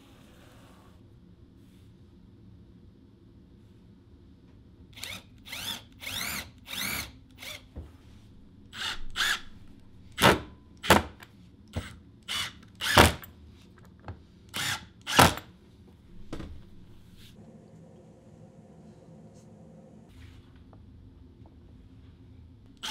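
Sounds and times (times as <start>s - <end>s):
cordless drill driving screws: 5.0s - 7.6s, 8.8s - 9.5s, 11.8s - 13.2s, 14.5s - 15.4s.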